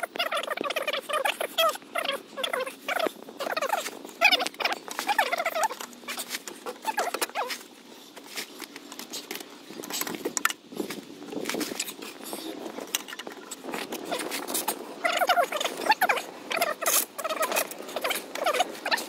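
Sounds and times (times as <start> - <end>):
high squeaky chirps: 0.0 - 7.6, 15.0 - 19.0.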